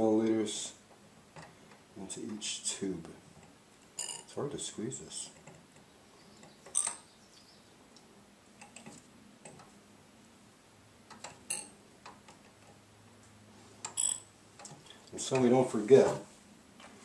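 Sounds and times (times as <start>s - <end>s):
dropper tip clinking glass tubes: 4.0s - 4.4s, 6.7s - 7.0s.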